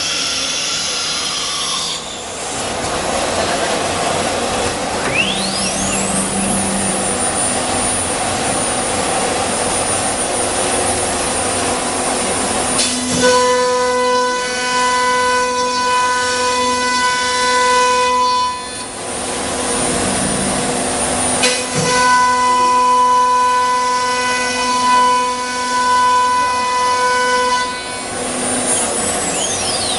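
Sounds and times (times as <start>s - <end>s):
multi-tone machine whine: 4.5s - 16.4s, 17.0s - 24.0s.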